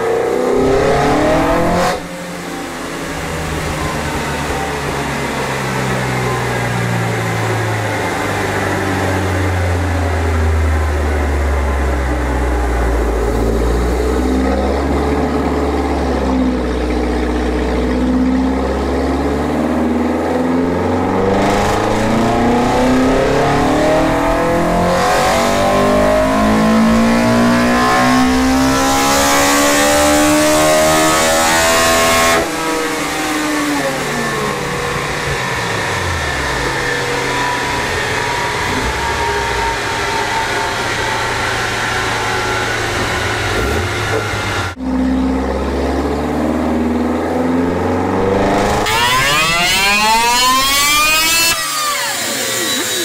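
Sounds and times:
car engine revving at full throttle: 0.0 - 53.0.

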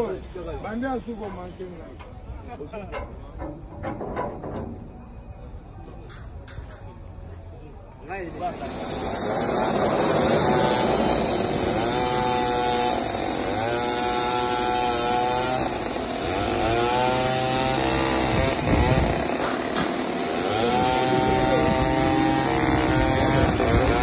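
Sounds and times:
sawmill engine running: 8.0 - 24.0
band blade cutting log: 11.7 - 24.0.

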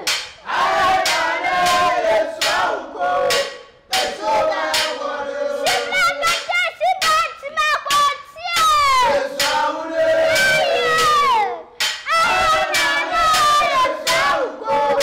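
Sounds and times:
sharp percussive strikes: 0.0 - 15.0
boy chanting loudly: 4.0 - 15.0.

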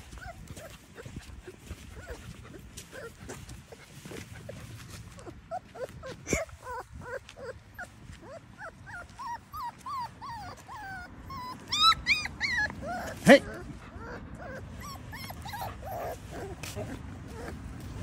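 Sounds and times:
puppy whimpering: 0.0 - 18.0.

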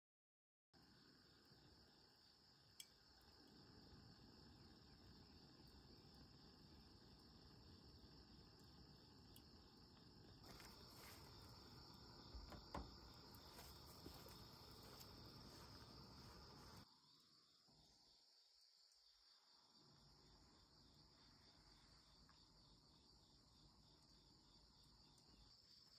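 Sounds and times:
low background hiss and rumble: 0.8 - 17.4
crickets chirring: 0.8 - 25.9.

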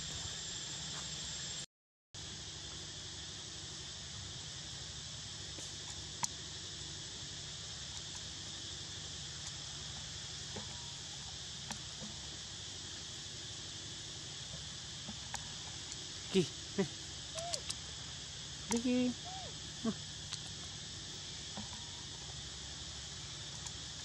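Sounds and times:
insect chorus: 0.0 - 1.6, 2.2 - 24.0
faint ticks: 5.5 - 6.9, 7.9 - 8.4, 9.4 - 12.4, 14.5 - 16.1, 19.9 - 20.8, 21.4 - 22.4, 23.5 - 24.0.

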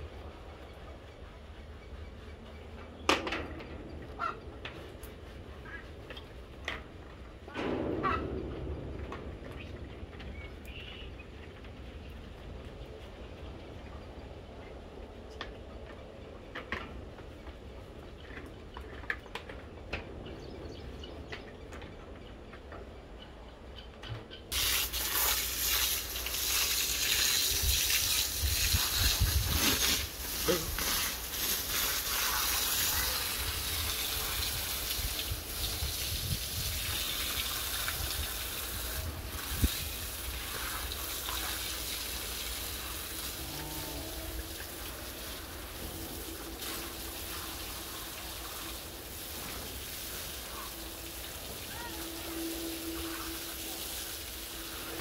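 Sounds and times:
hose water spraying: 24.5 - 55.0.

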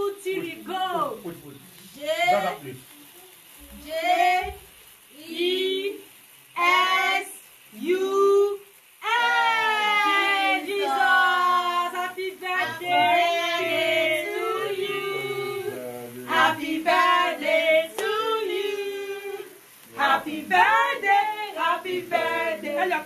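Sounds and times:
voices singing along: 6.6 - 8.4, 9.0 - 23.0
woman singing long notes: 9.0 - 15.7.

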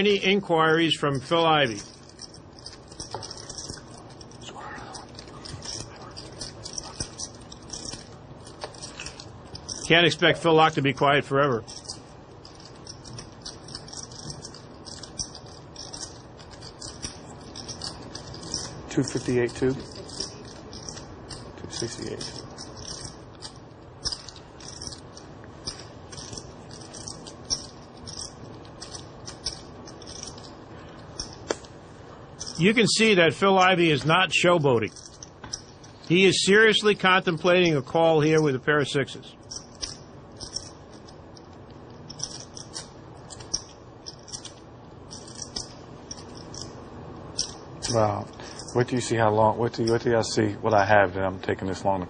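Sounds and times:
poker chips clicking: 1.4 - 10.2, 11.7 - 30.5, 31.1 - 31.6, 39.5 - 41.1, 42.1 - 46.7.

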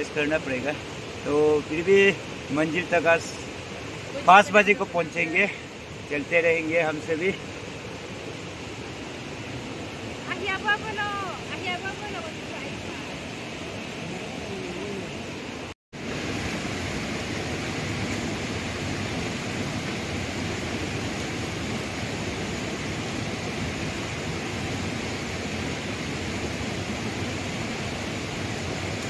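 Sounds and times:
stream rushing over stones: 0.0 - 29.0.

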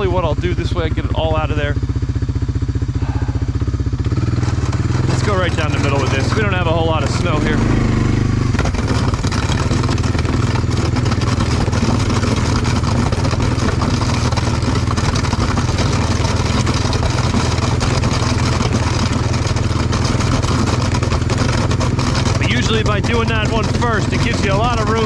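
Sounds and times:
atv engine running under load: 0.0 - 25.0
plow blade pushing snow: 0.0 - 25.0.

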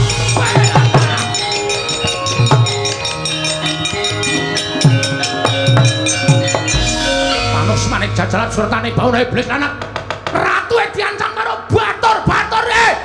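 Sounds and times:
ringing metallophone notes: 0.0 - 10.2.

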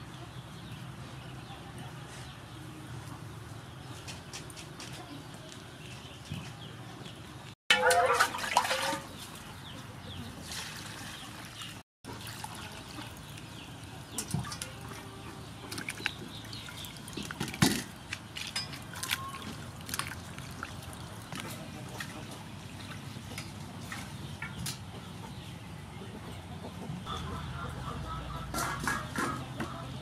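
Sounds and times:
small splashes and knocks: 7.7 - 9.5, 15.6 - 24.8
hands scrubbing vegetables in water: 7.7 - 9.7, 10.4 - 13.6, 14.7 - 24.3
water sloshing in a steel bowl: 7.7 - 9.7, 10.4 - 24.6.

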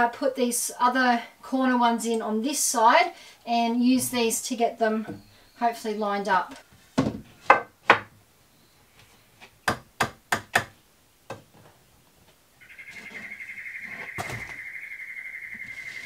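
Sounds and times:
wooden knocks of timber set down: 7.0 - 8.1.

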